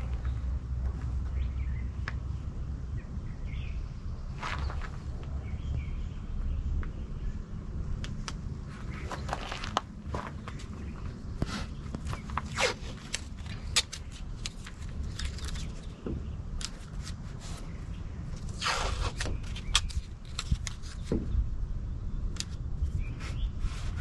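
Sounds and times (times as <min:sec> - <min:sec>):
plastic squeegee scraping: 0:18.5 - 0:19.9.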